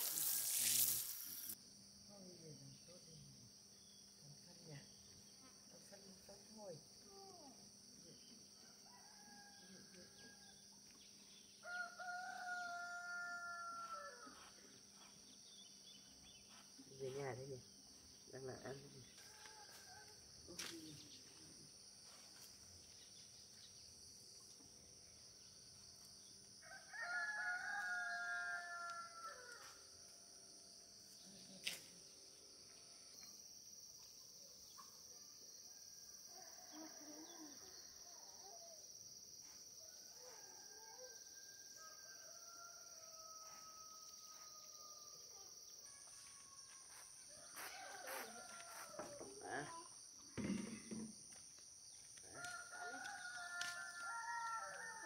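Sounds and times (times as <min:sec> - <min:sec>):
steady high hiss: 0:00.0 - 0:01.6
distant rooster crows: 0:08.6 - 0:10.6, 0:11.6 - 0:14.6, 0:19.2 - 0:20.4, 0:26.6 - 0:29.9, 0:39.8 - 0:49.5, 0:52.3 - 0:55.0
rooster crowing: 0:11.6 - 0:14.6, 0:19.2 - 0:20.3, 0:26.6 - 0:29.9, 0:40.0 - 0:45.1, 0:46.4 - 0:49.2, 0:52.4 - 0:55.0.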